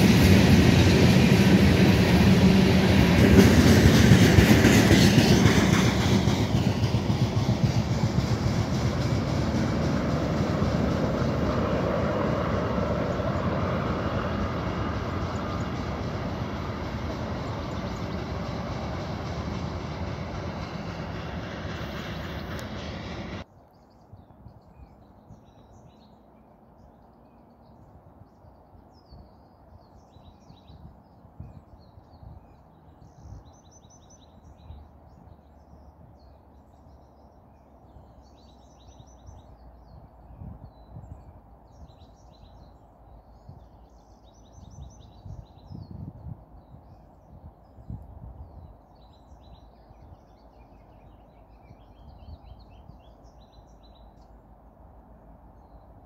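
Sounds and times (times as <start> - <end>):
freight train rumbling: 0.0 - 23.5, 29.6 - 56.0
birds chirping: 0.0 - 27.7.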